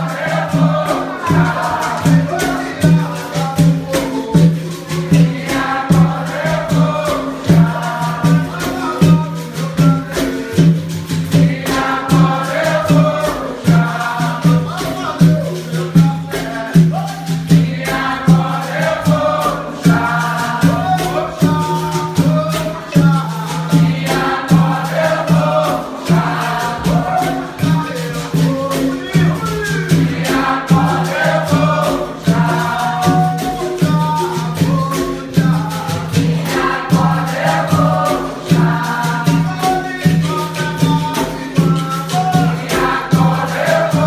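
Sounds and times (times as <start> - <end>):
berimbaus and drums rhythm: 0.0 - 44.0
group of voices singing: 0.0 - 44.0.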